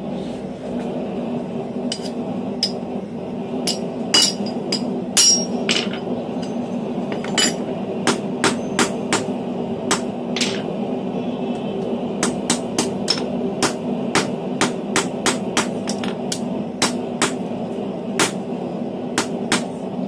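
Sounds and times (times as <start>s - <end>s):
steady low hum: 0.0s - 20.0s
hammer striking hot steel on anvil: 1.9s - 2.8s, 3.7s - 9.3s, 9.9s - 10.7s, 12.2s - 17.4s, 18.2s - 18.4s, 19.2s - 19.7s.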